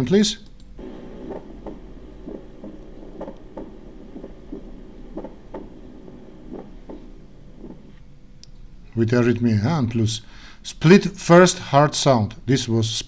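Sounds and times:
steady hum: 0.6s - 9.0s
heartbeat: 0.8s - 8.0s.

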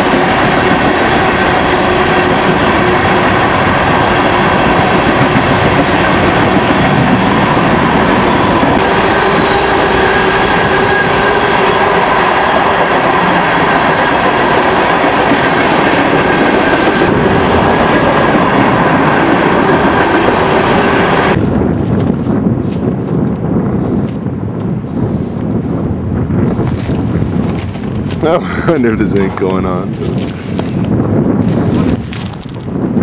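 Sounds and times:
freight train rolling on rails: 0.0s - 33.0s
wind noise: 0.0s - 33.0s
spray paint can hissing: 22.6s - 24.2s, 24.8s - 25.9s, 26.5s - 28.3s, 30.1s - 30.8s, 31.4s - 32.0s.

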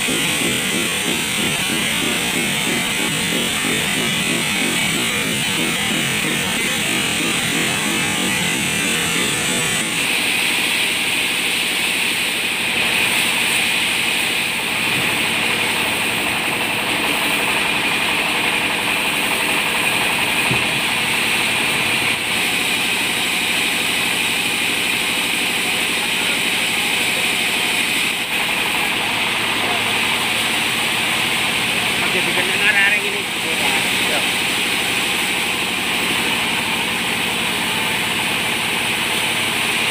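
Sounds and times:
band saw cutting wood: 0.0s - 12.0s.

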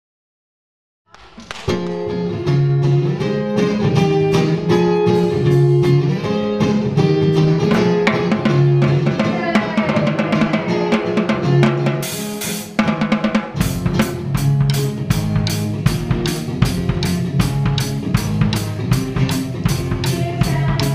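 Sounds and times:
acoustic guitars strumming: 1.7s - 20.9s
drum beat: 7.4s - 20.9s.

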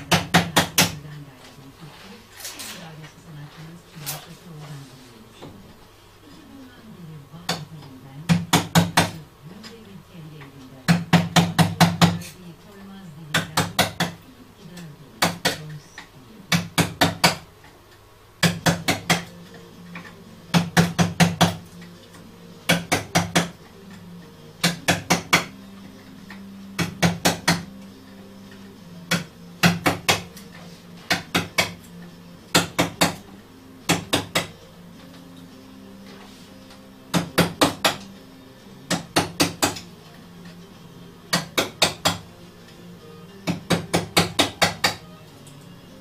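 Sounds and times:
mallet knocking on chisel: 0.0s - 1.0s, 8.3s - 9.2s, 10.9s - 12.3s, 13.3s - 14.2s, 22.7s - 23.6s, 24.6s - 25.5s, 26.8s - 27.7s, 29.1s - 30.3s, 31.1s - 31.9s, 32.5s - 33.3s, 33.9s - 34.6s, 37.1s - 38.1s, 38.9s - 39.9s, 41.3s - 42.2s, 43.4s - 45.1s.

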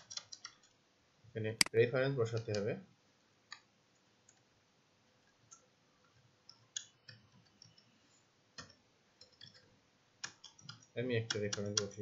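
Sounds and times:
faint keyboard keystrokes: 8.6s - 12.0s.

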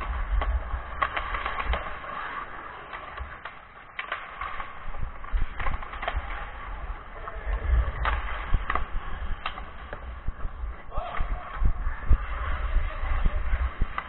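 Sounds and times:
hockey sticks clacking: 0.0s - 14.0s
skates scraping on ice: 0.0s - 14.0s
low rumble: 4.9s - 14.0s.

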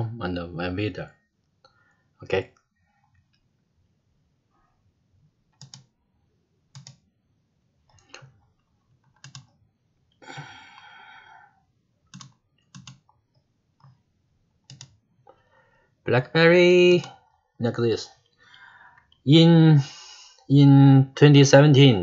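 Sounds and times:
computer keys and mouse clicks: 5.5s - 5.9s, 6.7s - 7.0s, 7.9s - 9.6s, 12.1s - 14.0s, 14.6s - 15.0s.

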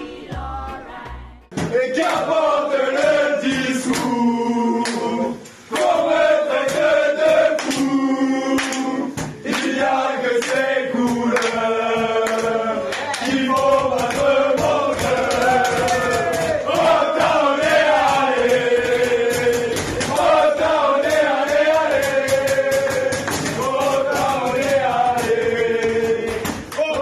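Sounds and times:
drum hits: 1.4s - 4.2s, 13.3s - 27.0s
crowd of men chanting: 1.7s - 27.0s.

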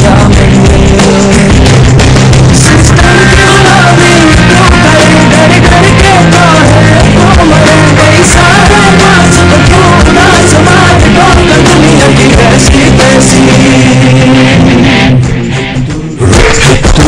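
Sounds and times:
sad instrumental song music: 0.0s - 16.6s.

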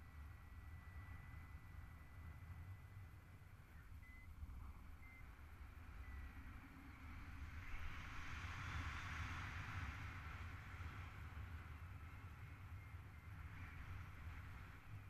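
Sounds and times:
faint short beeps: 0.0s - 5.4s, 6.0s - 7.8s.

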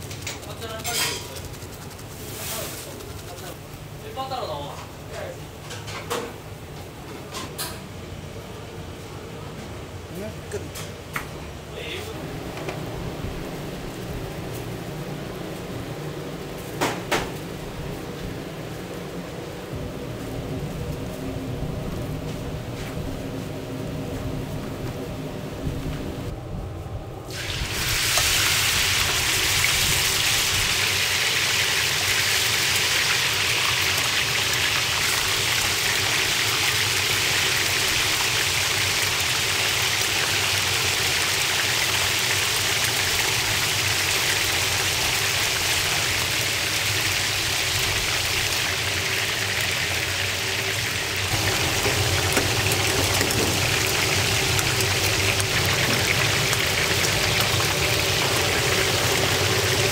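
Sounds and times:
meat sizzling on a grill: 27.3s - 59.9s.

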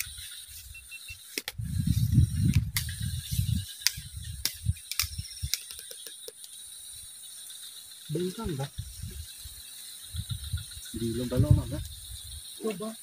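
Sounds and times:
sharp clicks and ticks: 1.1s - 1.6s, 2.2s - 3.0s, 3.7s - 6.6s
wind buffeting microphone: 1.5s - 5.6s, 8.6s - 12.5s.

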